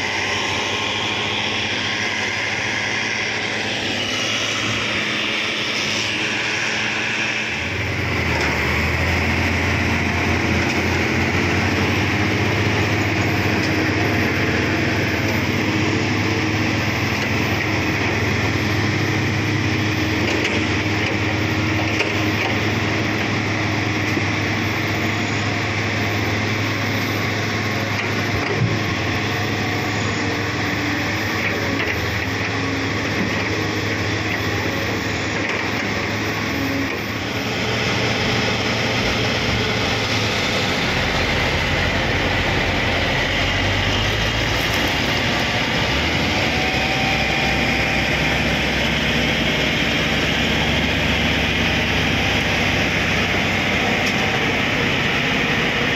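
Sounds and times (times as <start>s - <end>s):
deep low engine rumble: 0.0s - 55.9s
heavy diesel machinery running: 0.0s - 55.9s.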